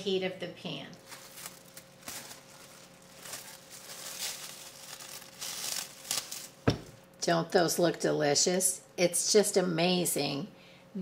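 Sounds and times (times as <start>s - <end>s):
cling wrap crinkling: 1.0s - 7.1s.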